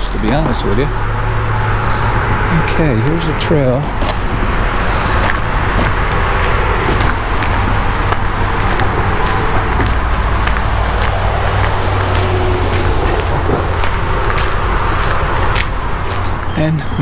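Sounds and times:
steady low rumble: 0.0s - 16.4s
footsteps crunching on shells: 5.0s - 16.5s.

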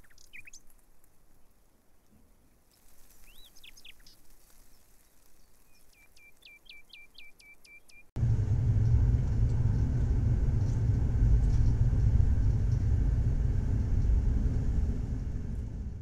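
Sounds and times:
train rumble from on board: 8.2s - 16.0s.

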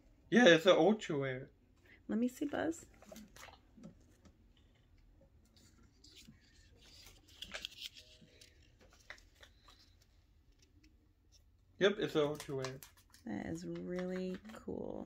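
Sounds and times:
paper rustling and clicks: 5.5s - 11.0s, 12.0s - 14.8s.

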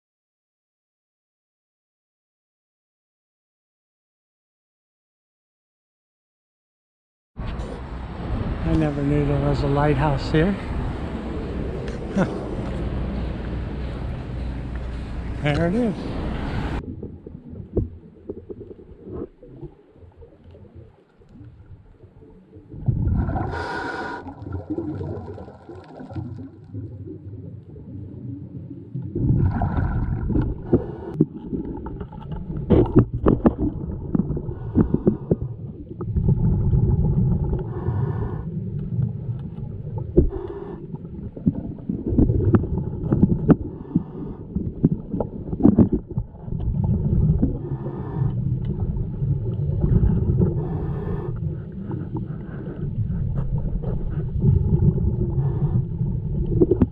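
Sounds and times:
exhaled bubbles rumbling: 16.6s - 56.9s
scuba regulator breathing underwater: 23.1s - 24.7s, 34.3s - 35.6s, 37.1s - 38.8s, 40.2s - 41.4s, 43.5s - 44.8s, 47.4s - 48.6s, 49.8s - 56.1s
hiss: 23.5s - 24.3s.

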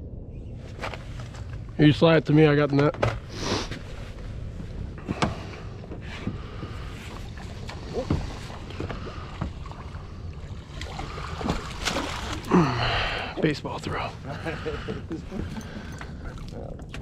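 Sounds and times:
water slapping against boat hull: 6.3s - 12.5s
fish splashing at surface: 10.7s - 12.6s.

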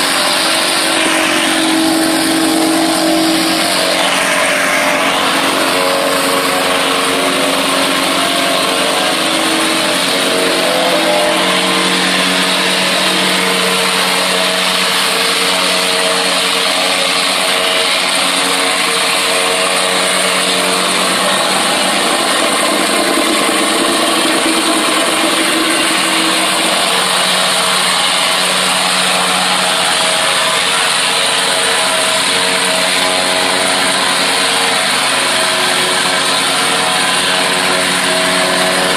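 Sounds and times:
plate compactor on gravel: 0.0s - 38.9s.

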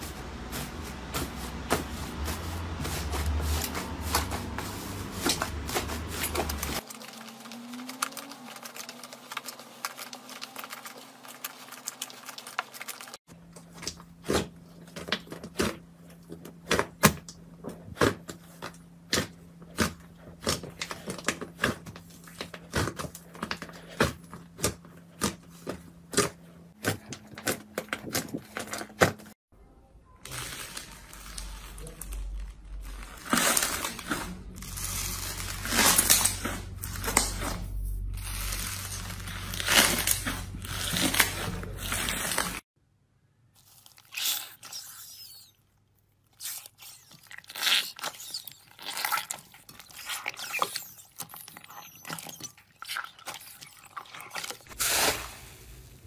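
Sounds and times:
hands squishing slime: 46.4s - 54.8s.

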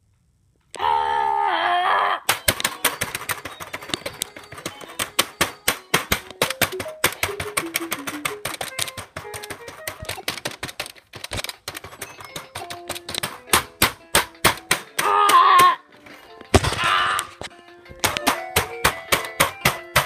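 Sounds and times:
faint keyboard notes: 2.3s - 14.4s
plastic keyboard keys clattering: 2.3s - 15.0s, 17.4s - 20.0s.

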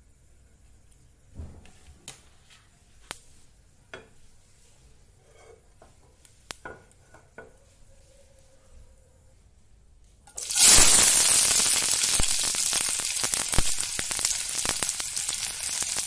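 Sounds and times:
oil crackling in frying pan: 10.3s - 16.0s.

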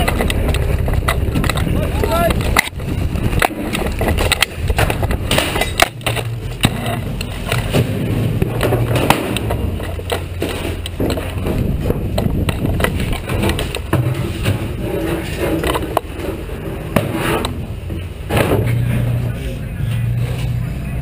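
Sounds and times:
rifle and kit rattling: 0.0s - 16.7s
low rumble: 0.0s - 21.0s.

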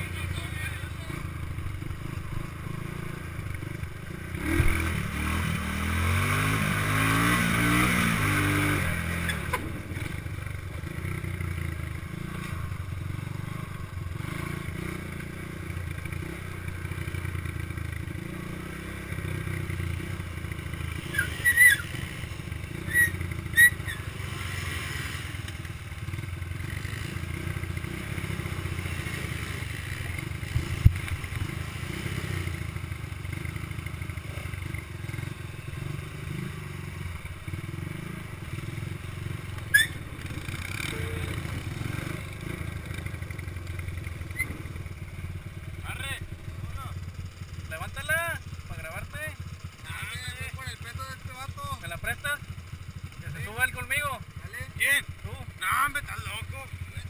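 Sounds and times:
atv engines running: 0.0s - 57.0s
dirt bike engine: 0.0s - 57.0s
short high squeaks: 9.2s - 9.7s, 21.1s - 22.1s, 22.8s - 24.1s, 39.6s - 40.0s, 44.3s - 44.6s.

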